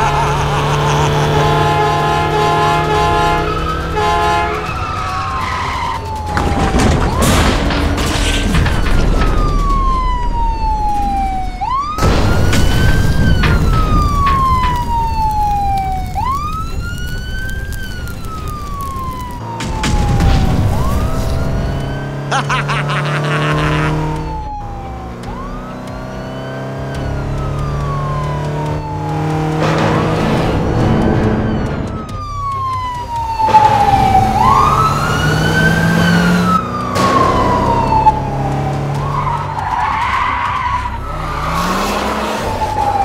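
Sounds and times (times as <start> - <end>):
police siren wailing: 0.0 - 43.0
rumbling vehicle noise: 0.0 - 43.0
bangs: 6.2 - 10.0.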